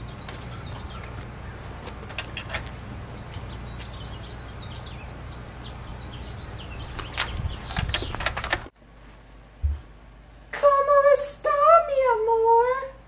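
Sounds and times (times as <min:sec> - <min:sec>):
small birds chirping: 0:00.0 - 0:08.7
low background hum: 0:00.0 - 0:13.0.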